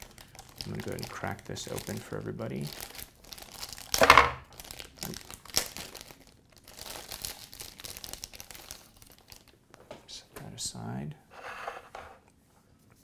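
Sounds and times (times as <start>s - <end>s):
plastic bag crinkling: 0.0s - 9.6s.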